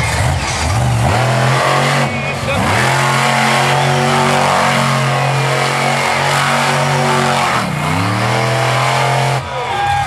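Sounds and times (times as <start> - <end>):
monster truck engine revving: 0.0 - 10.0.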